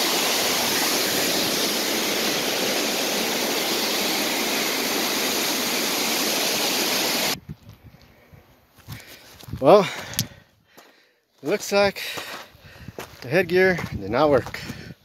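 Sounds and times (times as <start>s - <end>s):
waterfall rushing: 0.0s - 7.4s.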